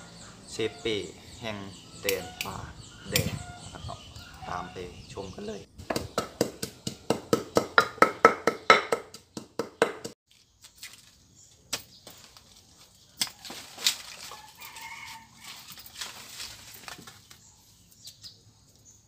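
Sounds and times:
pestle pounding in clay mortar: 5.8s - 10.2s
rustling while digging plants: 10.3s - 18.2s.

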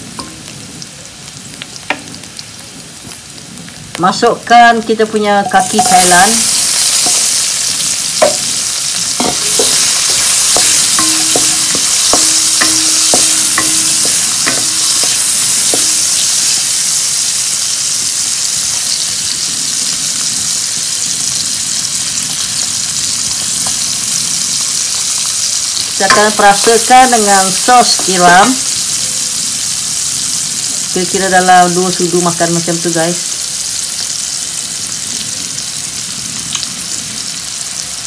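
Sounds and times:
food sizzling in hot oil: 0.0s - 38.0s
spatula scraping a wok: 5.7s - 16.8s.

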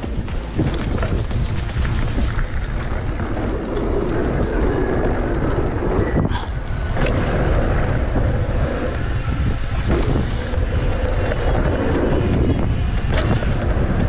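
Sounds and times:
sharp clatters: 0.0s - 7.8s
bike tyres rolling over dirt: 0.0s - 14.0s
wind rushing over microphone: 0.0s - 14.0s.

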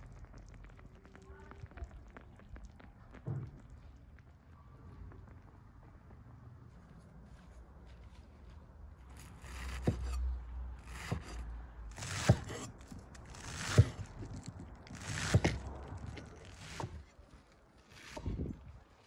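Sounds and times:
cleaver chopping on wooden board: 9.2s - 10.2s, 10.9s - 14.1s, 14.9s - 17.0s.

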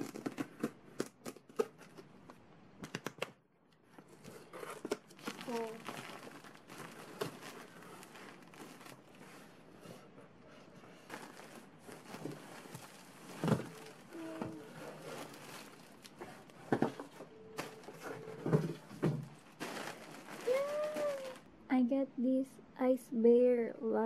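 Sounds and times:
plastic wrap crinkling: 0.0s - 2.0s, 4.0s - 9.8s, 11.0s - 21.5s.

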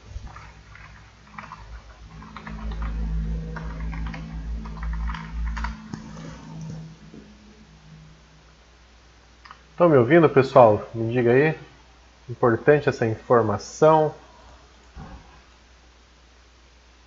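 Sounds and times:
low hum: 0.0s - 13.5s
keyboard typing clicks: 0.3s - 6.9s.

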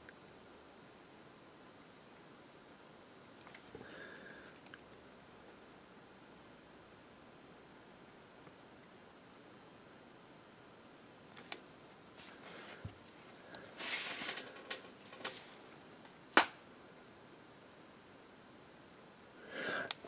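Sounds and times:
sharp plastic clicks: 16.4s - 16.6s.

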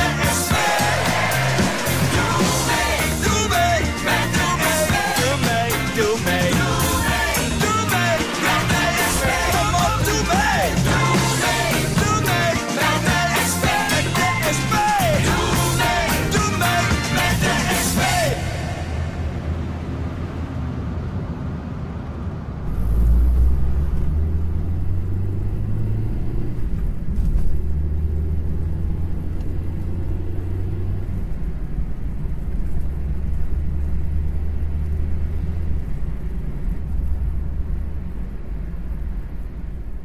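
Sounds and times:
car driving rumble: 14.1s - 40.0s.

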